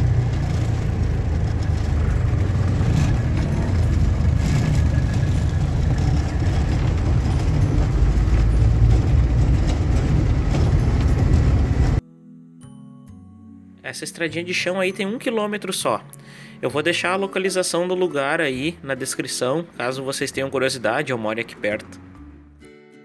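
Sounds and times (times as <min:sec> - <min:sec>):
diesel engine and road rumble: 0:00.0 - 0:12.0
knocks and rattles: 0:00.0 - 0:12.0.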